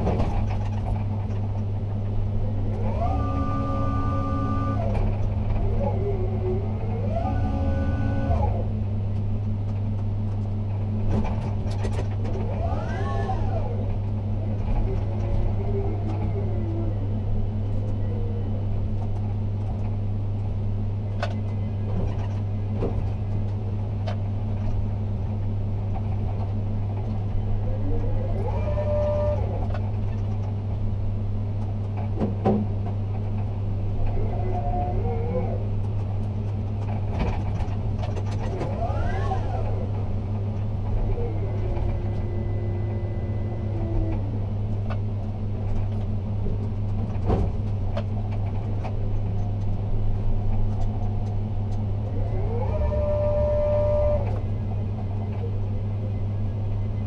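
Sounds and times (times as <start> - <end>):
drive motors whining: 0.0 - 30.6, 34.0 - 57.0
low electrical hum: 0.0 - 57.0.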